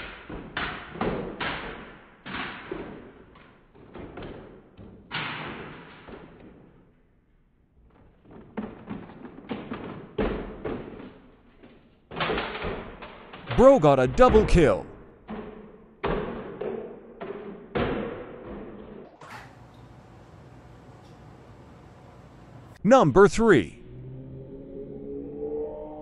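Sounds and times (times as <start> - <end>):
toy trucks tumbling down stairs: 7.8 - 14.4.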